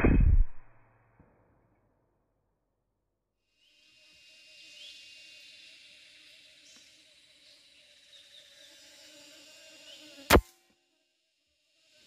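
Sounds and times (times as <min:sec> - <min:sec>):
faint bird chirp: 0:03.6 - 0:10.3
high-pitched insect drone: 0:03.6 - 0:12.0.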